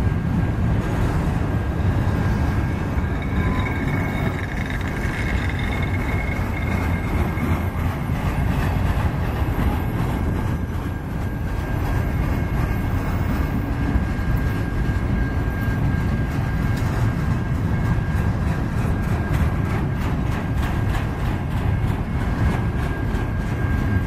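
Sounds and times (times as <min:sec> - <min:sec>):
train wheels rumbling on track: 0:00.0 - 0:24.0
high-pitched squeal: 0:02.2 - 0:08.1.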